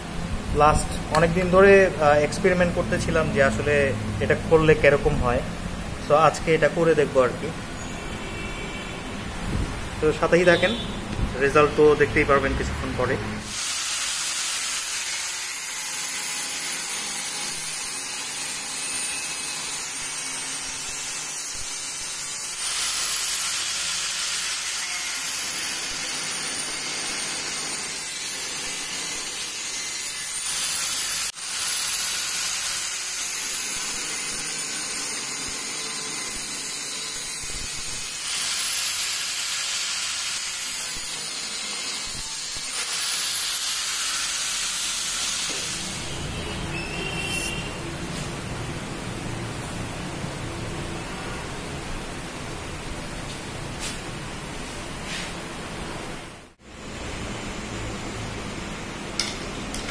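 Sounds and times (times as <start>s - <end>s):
angle grinder cutting metal: 11.6s - 46.4s.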